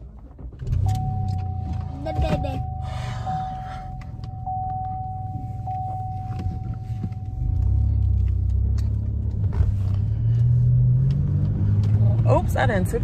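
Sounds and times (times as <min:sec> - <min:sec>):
low engine rumble: 0:00.0 - 0:13.0
car warning chime: 0:00.7 - 0:08.0.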